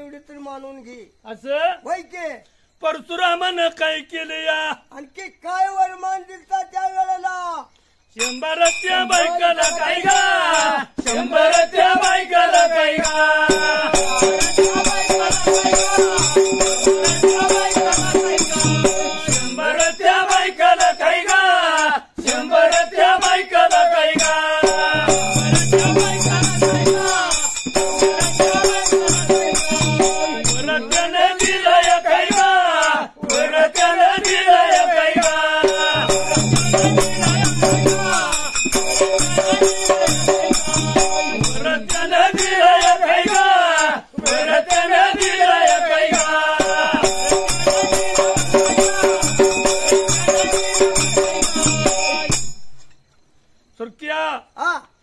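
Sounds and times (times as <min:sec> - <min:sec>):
men singing folk song: 0:08.2 - 0:52.4
hand cymbals jangling: 0:08.2 - 0:53.0
dhol drum beat: 0:08.3 - 0:21.4, 0:22.2 - 0:52.7.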